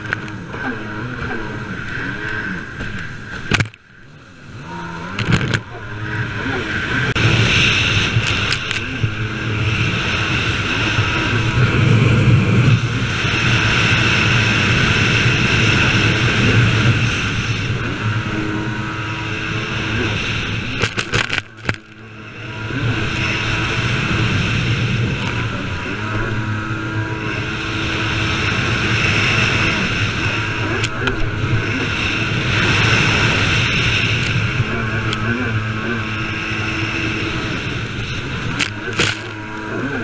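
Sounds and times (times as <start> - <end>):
jet ski engine running: 0.0 - 40.0
wind on microphone: 0.0 - 40.0
sharp crackles: 7.5 - 9.0, 20.7 - 22.0, 37.8 - 39.7.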